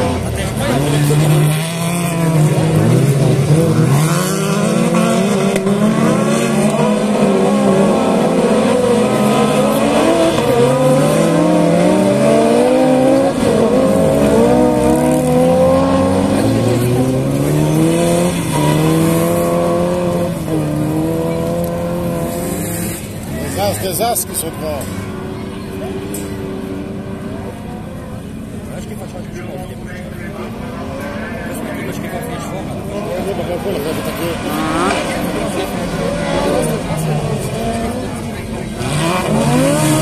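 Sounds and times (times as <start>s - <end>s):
racing car engines revving: 0.0s - 40.0s.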